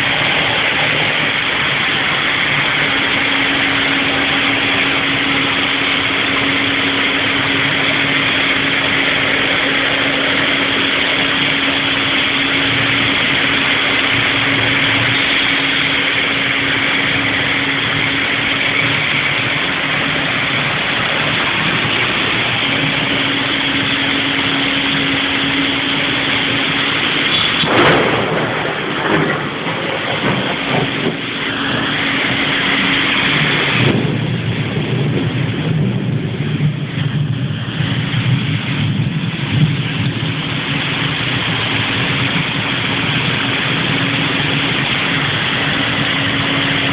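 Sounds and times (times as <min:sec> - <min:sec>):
sharp crack: 0:00.0 - 0:35.7
heavy rain hissing: 0:00.0 - 0:46.9
low steady hum: 0:00.0 - 0:46.9.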